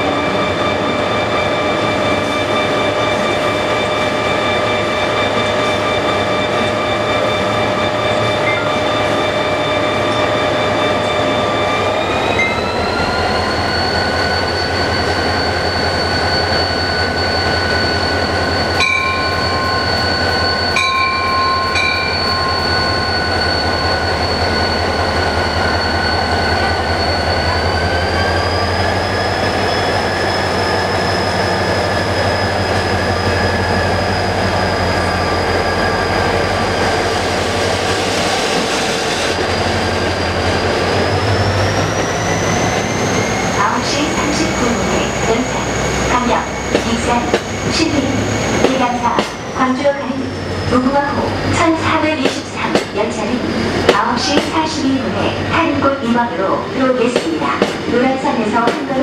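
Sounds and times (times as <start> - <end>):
whine climbing in pitch: 0.0 - 38.7
locomotive engine drone: 0.0 - 59.0
short high tones: 7.9 - 10.4.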